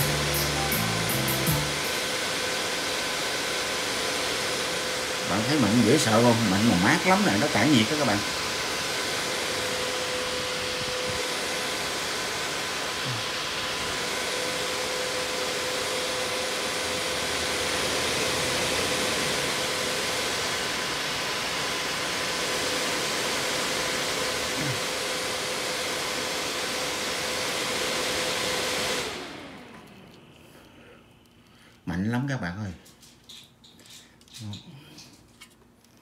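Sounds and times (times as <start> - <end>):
cooler fan whining: 0.0 - 36.0.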